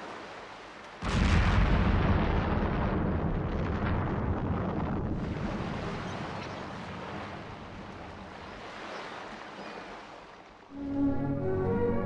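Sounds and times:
explosion boom and rumble: 1.0 - 6.0.

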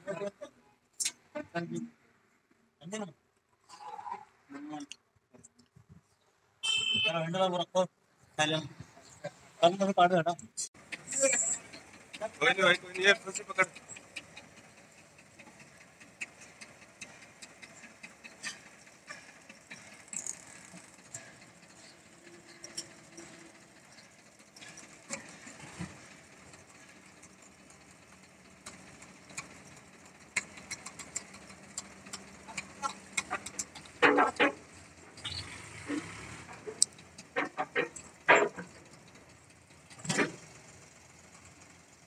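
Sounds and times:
tractor engine running: 10.8 - 42.0
metal clicks and knocks: 36.6 - 39.2.

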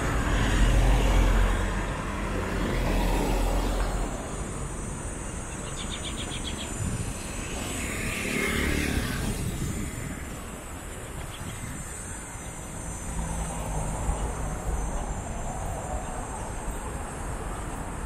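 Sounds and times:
vehicle passing close by: 6.5 - 10.4.

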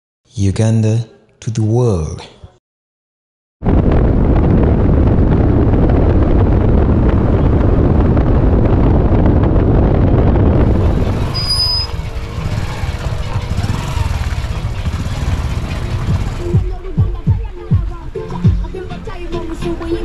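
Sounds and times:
wind buffeting microphone: 3.6 - 16.7
road noise: 4.0 - 20.0.

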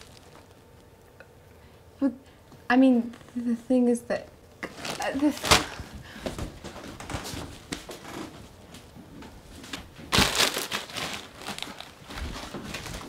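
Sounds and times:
plastic chip bag crinkling: 0.0 - 0.8, 4.6 - 5.9, 10.1 - 13.0.

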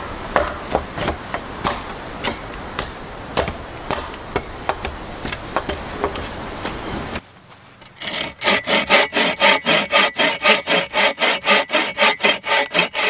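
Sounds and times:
tool striking wood: 8.0 - 13.0.

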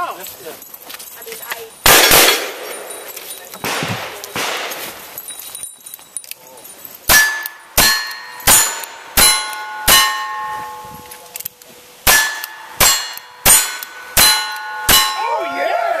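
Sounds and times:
steel target ringing: 7.1 - 11.1, 12.0 - 15.6.

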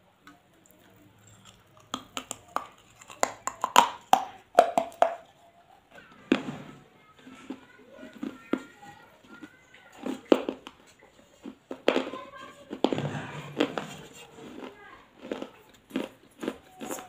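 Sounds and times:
crunching clay pot: 0.0 - 5.4, 6.1 - 17.0
puff of breath: 12.9 - 14.2.

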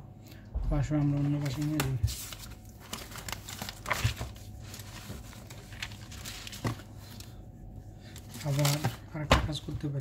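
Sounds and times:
paper rustling: 1.0 - 7.4, 8.0 - 9.1.

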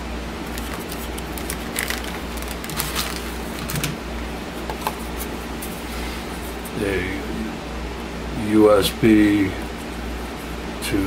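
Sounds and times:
steady low hum: 0.0 - 11.0
plastic and cardboard crackling: 0.4 - 4.0.

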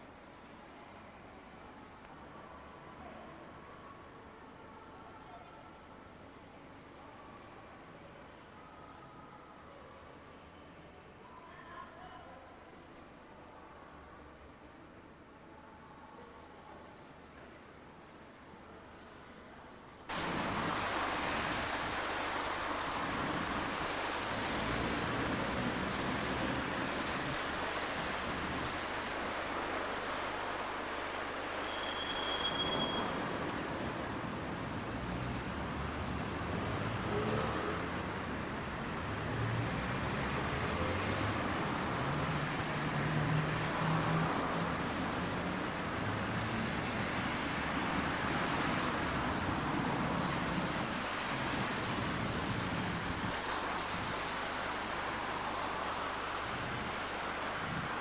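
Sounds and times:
engine hum of nearer vehicles: 20.1 - 58.0
passing cars: 20.1 - 58.0
short high tone: 31.6 - 33.1.

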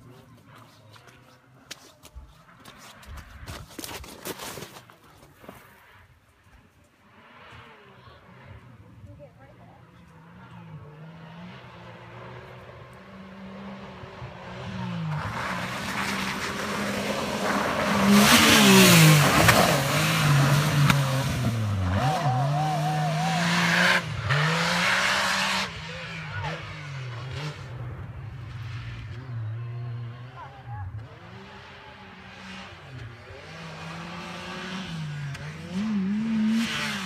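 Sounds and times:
engine revving: 7.1 - 37.0
tyres rushing on dirt: 9.1 - 37.0.

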